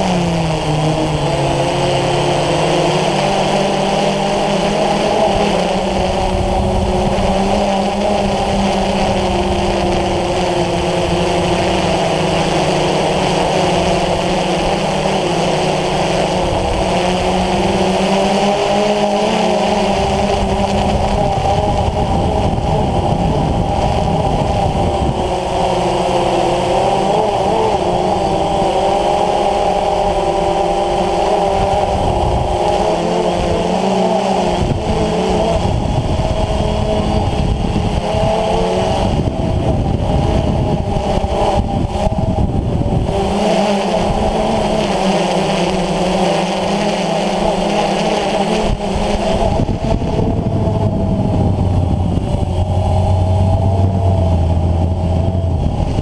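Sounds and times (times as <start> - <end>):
drone motors whining: 0.0 - 56.0
low rough rumble: 49.3 - 56.0.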